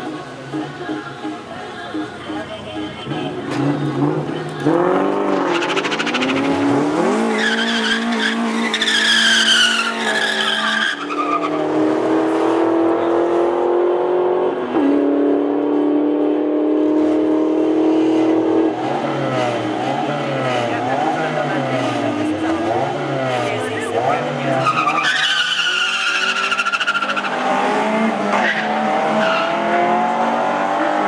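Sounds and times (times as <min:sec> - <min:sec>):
engine revving: 0:03.0 - 0:10.7, 0:11.4 - 0:25.1, 0:25.8 - 0:31.0
tire squeal: 0:05.3 - 0:11.7, 0:24.4 - 0:27.6, 0:28.3 - 0:30.0.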